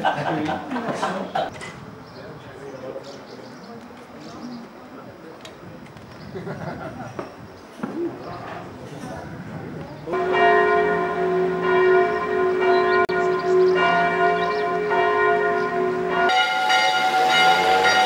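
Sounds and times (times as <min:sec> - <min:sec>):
church bells ringing: 0:10.1 - 0:18.0.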